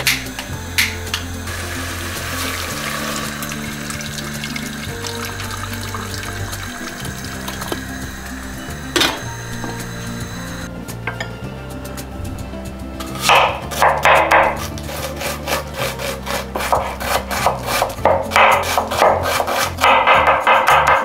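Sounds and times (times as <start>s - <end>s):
background music: 0.0s - 21.0s
knife chopping onion on board: 13.2s - 21.0s.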